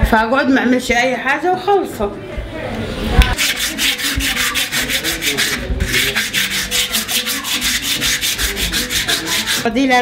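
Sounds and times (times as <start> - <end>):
rubbing strokes on wood: 3.4 - 9.7.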